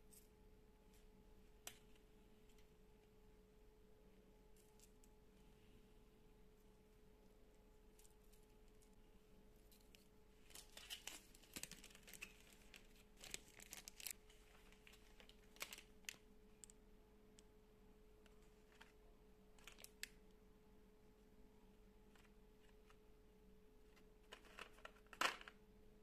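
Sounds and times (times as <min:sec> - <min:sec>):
faint steady hum: 0:00.0 - 0:26.0
plastic crinkling: 0:09.8 - 0:16.8, 0:19.6 - 0:20.2, 0:24.2 - 0:25.5.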